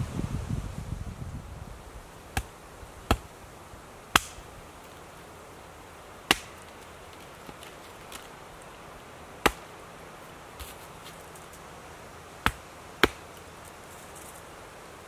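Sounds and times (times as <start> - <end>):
blade chopping wood: 3.1 - 3.3, 4.1 - 4.5, 6.3 - 6.8, 9.4 - 9.7, 12.4 - 13.4.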